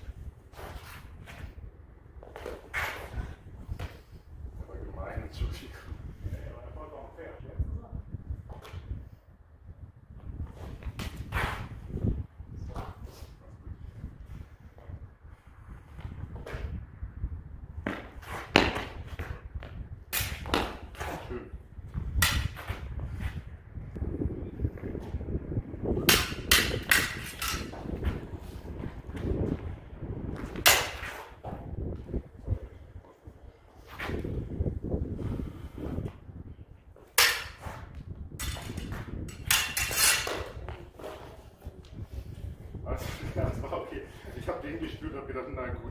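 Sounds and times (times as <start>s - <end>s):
low rumble: 22.8s - 30.7s
steel sabres clashing: 26.0s - 27.8s, 37.2s - 37.8s, 38.4s - 40.5s.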